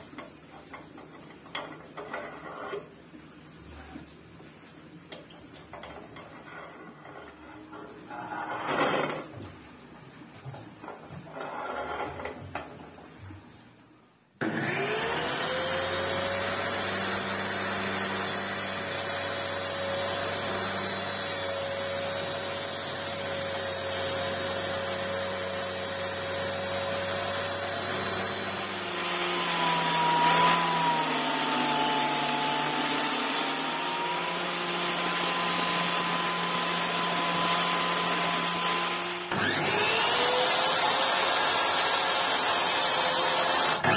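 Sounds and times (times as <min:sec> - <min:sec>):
table saw cutting laminate: 0:14.4 - 0:43.9
table saw whine: 0:14.4 - 0:43.9.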